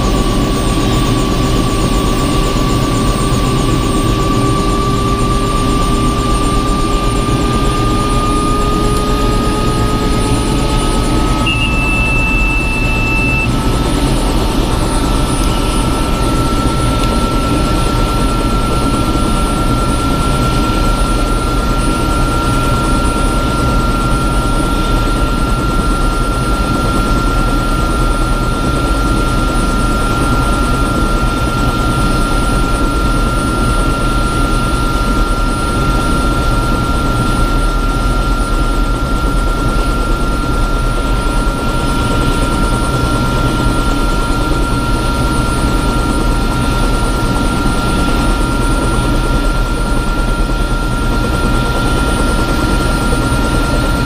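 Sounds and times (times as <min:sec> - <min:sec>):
helicopter rotor drone: 0:00.0 - 0:54.0
helicopter turbine whine: 0:00.0 - 0:54.0.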